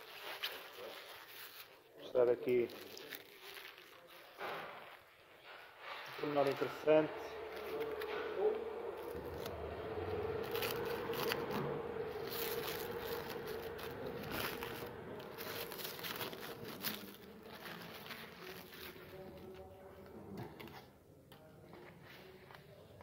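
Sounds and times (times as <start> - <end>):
plastic wrap crinkling: 0.0 - 5.3, 6.0 - 19.7
faint steady hum: 6.4 - 17.3.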